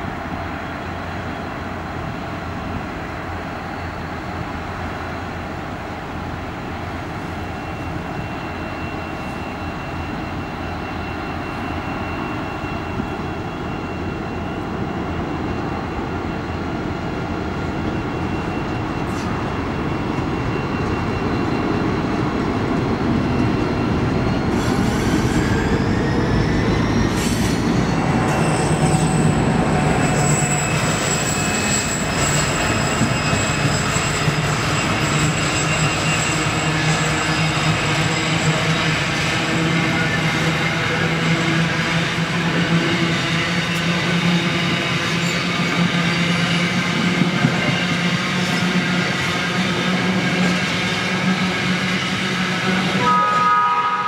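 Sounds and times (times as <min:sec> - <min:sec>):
diesel locomotive engines running: 0:00.0 - 0:54.0
high wheel squeal: 0:07.4 - 0:22.3, 0:23.2 - 0:54.0
train wagons rolling by: 0:27.4 - 0:53.6.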